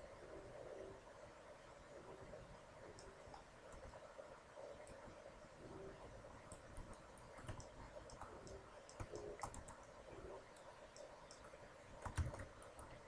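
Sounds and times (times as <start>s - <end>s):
computer mouse clicks: 2.8s - 4.0s, 6.5s - 13.0s
keyboard keys clicking: 6.5s - 13.0s.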